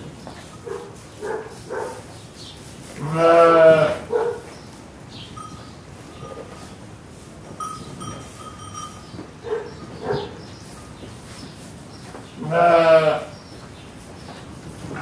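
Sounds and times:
loud animal bleat: 0:03.0 - 0:04.1, 0:12.4 - 0:13.3.

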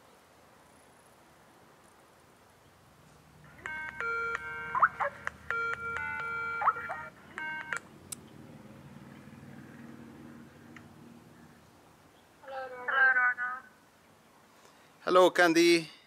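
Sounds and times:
electronic call ringing tone: 0:03.4 - 0:07.8.

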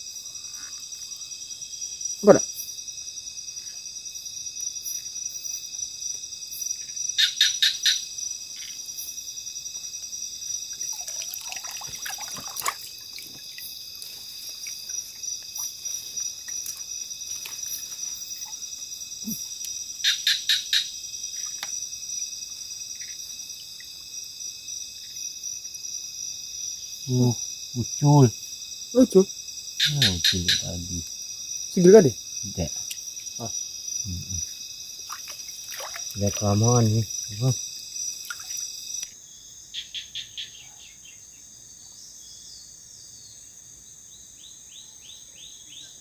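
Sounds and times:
crickets and insects chorus: 0:00.0 - 0:46.0
splashing and rustling in water: 0:10.7 - 0:18.7, 0:35.0 - 0:36.8, 0:38.2 - 0:38.7.

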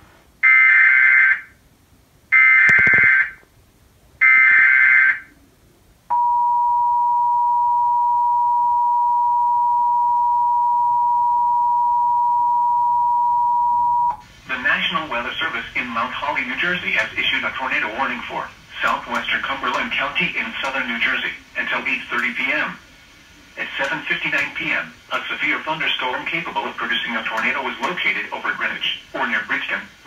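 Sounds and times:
digital header bursts: 0:02.4 - 0:03.4
two-tone attention signal: 0:06.1 - 0:14.2.

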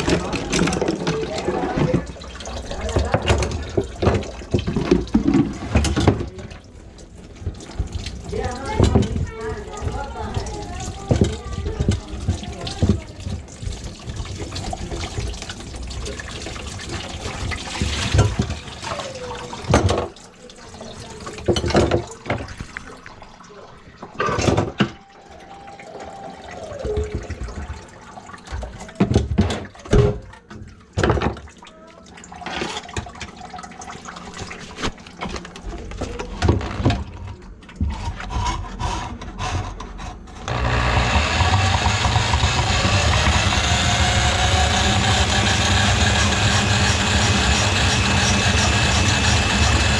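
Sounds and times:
water trickling into bucket: 0:00.0 - 0:37.8
electric drum auger running: 0:40.5 - 0:49.9.

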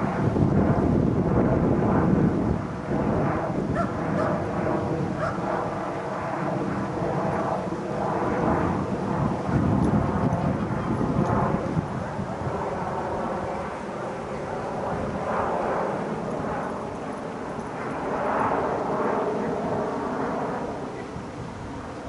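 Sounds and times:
wind on microphone: 0:00.0 - 0:22.0
dog barking: 0:03.8 - 0:04.4, 0:05.2 - 0:05.4.

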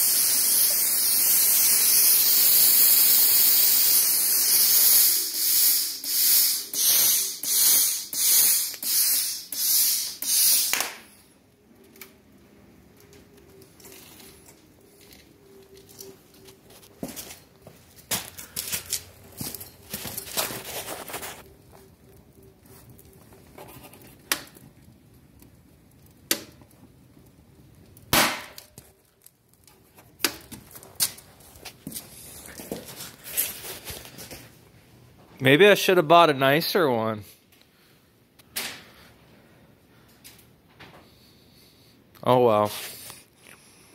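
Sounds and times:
plasma cutter torch hissing: 0:00.0 - 0:10.9.

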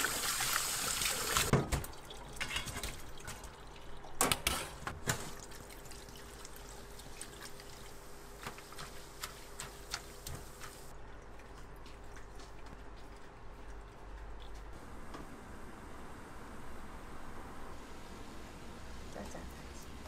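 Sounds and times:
water trickle: 0:00.0 - 0:04.2, 0:05.3 - 0:08.1.

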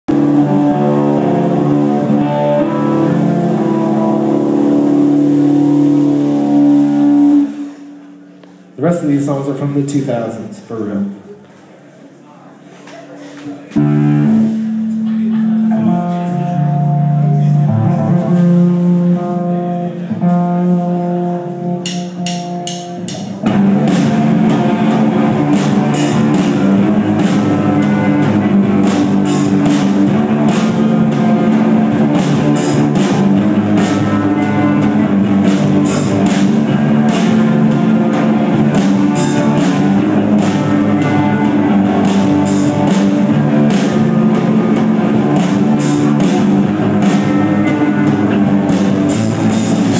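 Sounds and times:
rock band playing: 0:00.0 - 0:10.8, 0:13.8 - 0:49.9
guitar riff: 0:00.1 - 0:08.8, 0:13.8 - 0:49.9
drums cymbal and snare: 0:21.8 - 0:49.9.

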